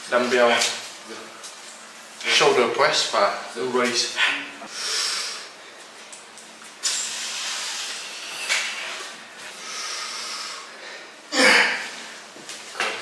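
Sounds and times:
man's forced hissing breaths: 4.7 - 5.6, 6.8 - 11.2.

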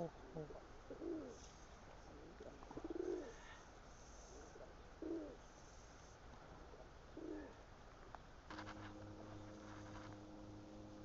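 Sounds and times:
pigeons cooing faintly: 0.0 - 7.8.

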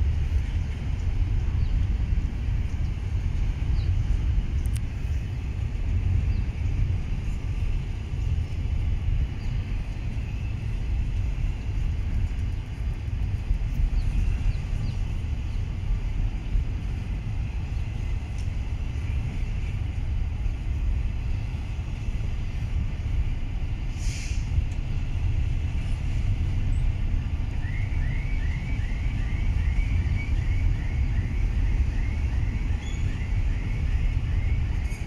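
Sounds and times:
train wheels rumbling on rail: 0.0 - 35.0
brief hiss: 23.9 - 24.6
bird chirping: 32.7 - 33.3.

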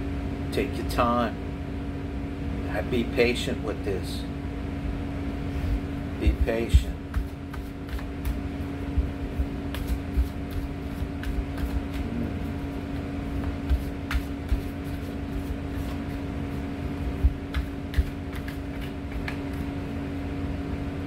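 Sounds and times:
machinery hum: 0.0 - 21.0
cards being shuffled: 13.4 - 16.2, 17.5 - 19.7.

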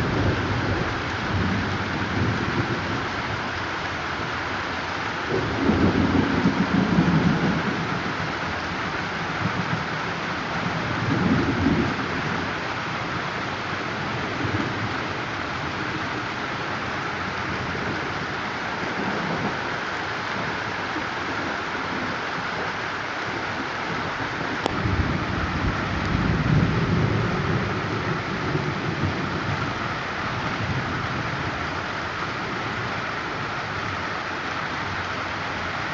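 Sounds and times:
heavy rain falling: 0.0 - 35.9
thunder rumbling: 5.3 - 8.4, 23.9 - 31.8.

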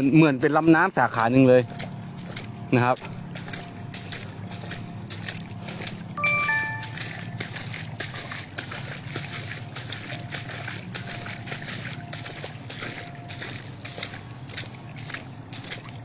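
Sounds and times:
floodwater running fast: 0.0 - 16.0
sloshing and splashing footsteps: 0.0 - 16.0
short chime: 6.2 - 7.4.

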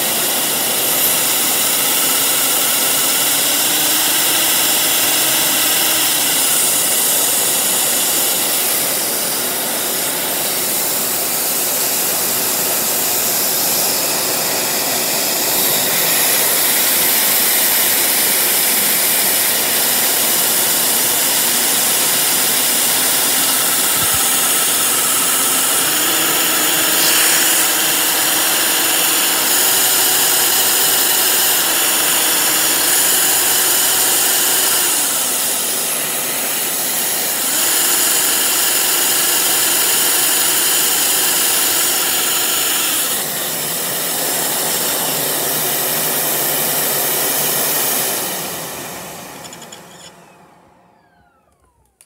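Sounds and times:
vacuum cleaner air rush with whine: 0.0 - 52.0.

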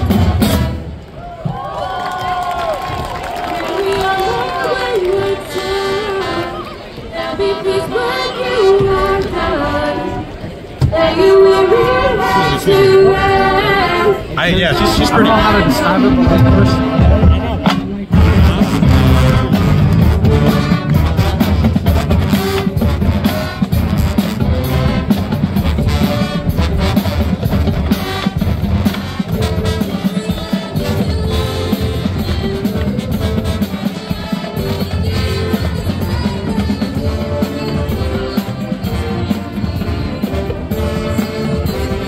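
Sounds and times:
drums keeping the beat: 0.0 - 1.6, 14.5 - 42.0
marching band playing: 0.0 - 42.0.

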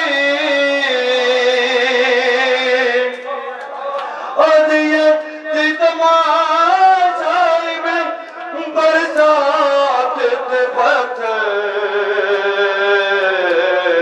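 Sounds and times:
man chanting into microphone: 0.0 - 14.0
men chanting together: 3.1 - 14.0.

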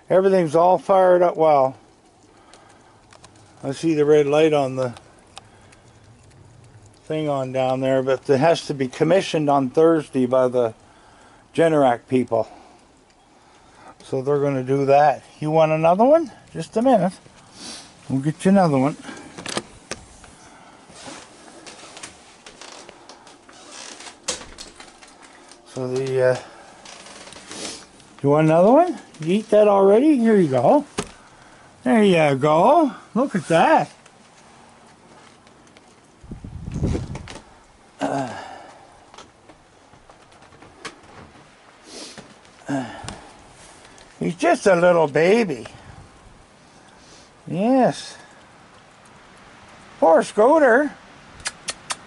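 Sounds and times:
rustling of household things: 15.0 - 37.6, 38.5 - 44.4
man murmuring: 38.0 - 38.6.

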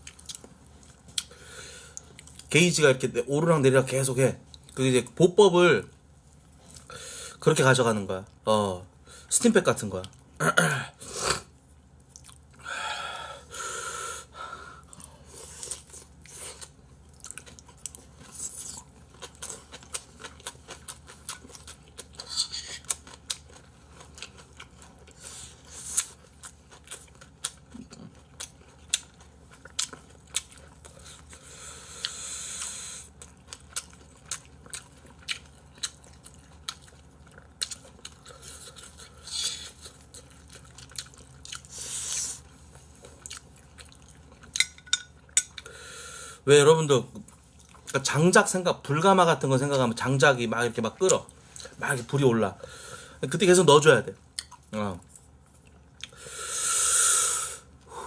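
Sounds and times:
chewing and crunching: 0.0 - 2.5, 11.9 - 12.6, 14.8 - 45.8, 54.2 - 56.2.

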